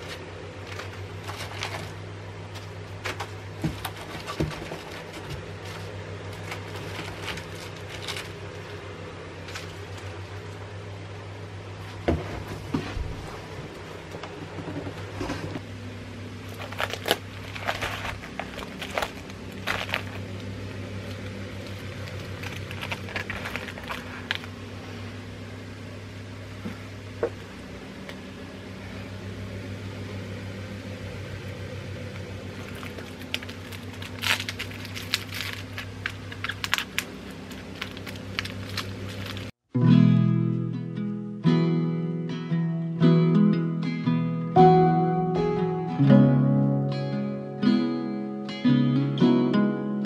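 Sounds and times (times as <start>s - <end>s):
plastic bags crinkling: 0.0s - 2.0s, 2.6s - 8.8s, 9.4s - 10.4s, 16.5s - 24.6s, 32.4s - 39.6s
low hum: 0.0s - 43.6s.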